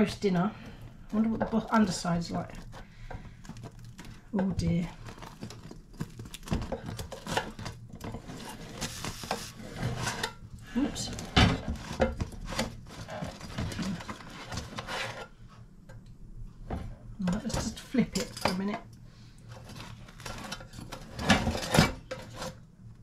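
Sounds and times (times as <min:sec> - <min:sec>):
spatula scraping metal basket: 0:08.2 - 0:15.3.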